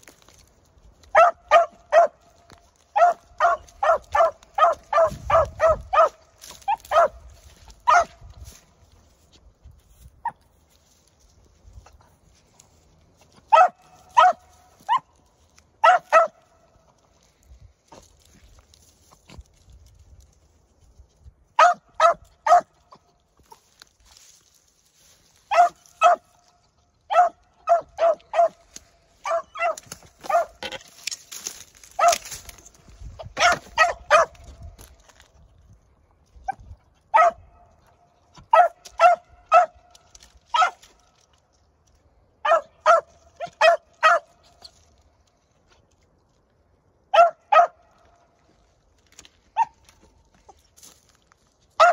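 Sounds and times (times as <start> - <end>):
dog barking: 1.1 - 2.2, 3.0 - 7.2, 7.8 - 8.2, 13.5 - 15.1, 15.8 - 16.4, 21.6 - 22.8, 25.5 - 26.3, 27.1 - 28.6, 29.2 - 30.6, 32.0 - 32.3, 33.4 - 34.5, 37.1 - 37.5, 38.5 - 39.8, 40.5 - 40.8, 42.4 - 44.3, 47.1 - 47.8.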